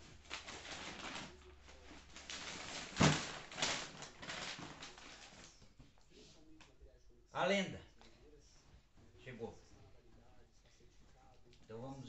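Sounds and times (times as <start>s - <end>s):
paper rustling and crumpling: 0.0s - 5.8s.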